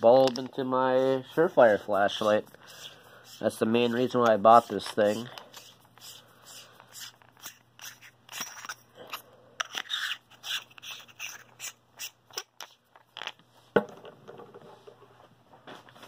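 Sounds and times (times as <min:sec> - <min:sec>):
flashlight metal clicks and scrapes: 0:02.6 - 0:13.4.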